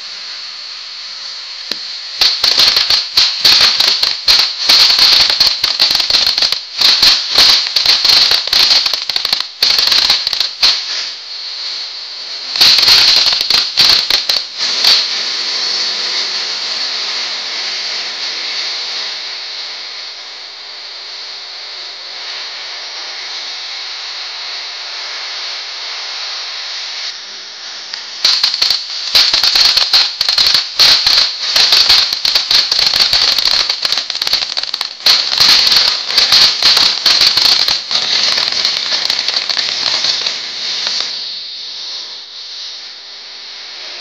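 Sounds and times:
rapid crackling of firework: 0:00.0 - 0:24.6, 0:27.8 - 0:43.1
firework fountain hissing: 0:00.0 - 0:44.0.

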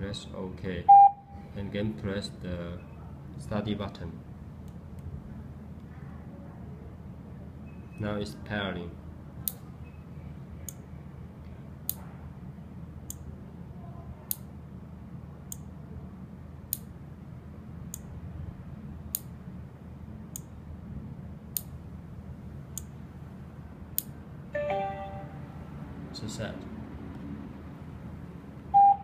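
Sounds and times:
short pitched tone: 0:00.9 - 0:01.4, 0:24.6 - 0:25.8, 0:28.8 - 0:29.0.

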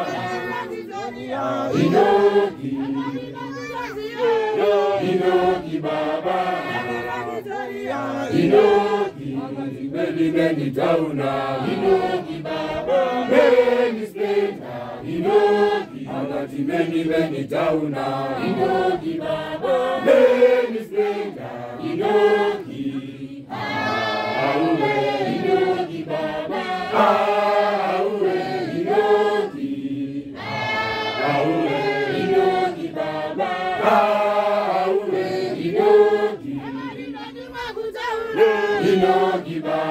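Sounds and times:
congregation singing a hymn: 0:00.0 - 0:39.9.

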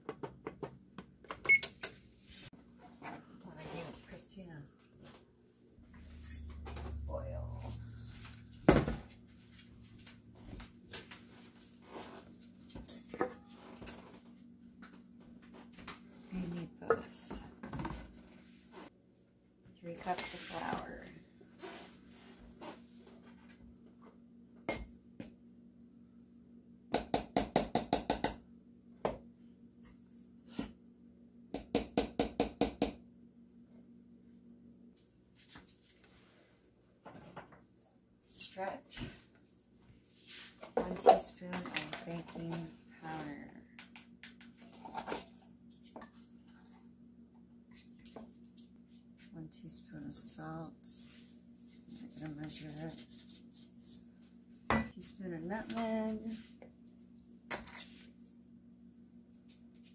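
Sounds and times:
low steady hum: 0:00.7 - 0:26.9, 0:32.9 - 0:59.9.

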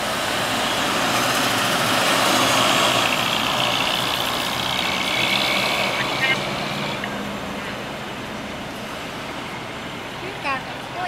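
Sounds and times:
trucks driving past: 0:00.0 - 0:11.0.

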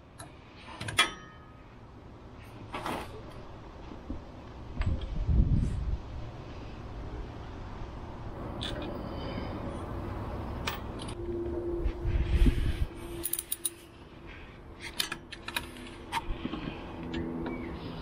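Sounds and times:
whirring tool with low rumble: 0:04.7 - 0:18.0
light metallic clinks and taps: 0:13.2 - 0:13.8.

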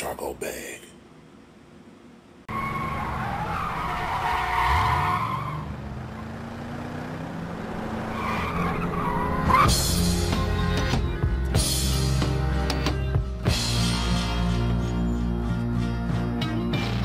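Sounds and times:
car engine revving: 0:02.5 - 0:12.9
music with a beat: 0:10.0 - 0:17.0.

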